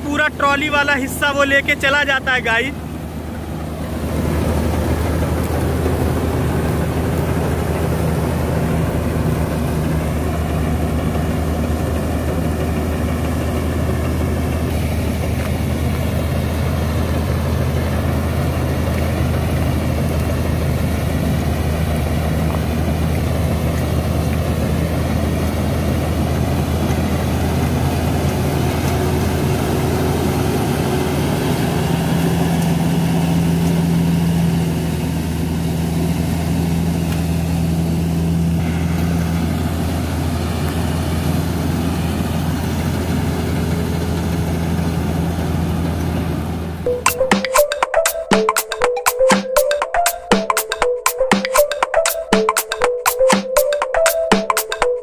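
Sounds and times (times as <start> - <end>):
higher machine hum: 0.0 - 32.7
tractor engine droning: 0.0 - 47.1.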